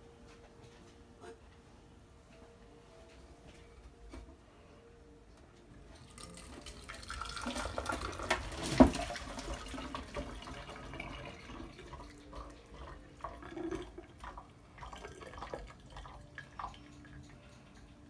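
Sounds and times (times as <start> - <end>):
tea pouring and splashing: 6.0 - 17.3
liquid trickling and dripping: 6.0 - 18.0.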